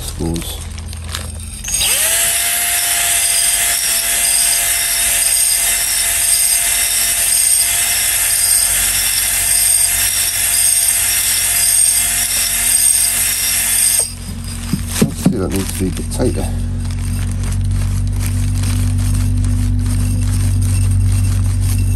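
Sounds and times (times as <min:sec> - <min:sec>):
hone stones scraping cylinder wall: 0:00.0 - 0:21.9
cordless drill running: 0:01.3 - 0:15.7.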